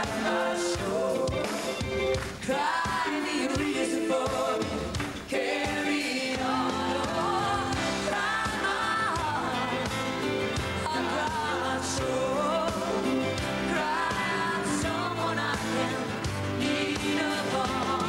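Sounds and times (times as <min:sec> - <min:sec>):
backing singers: 0:00.0 - 0:18.0
lead vocals: 0:00.0 - 0:18.0
live pop-rock band playing: 0:00.0 - 0:18.0.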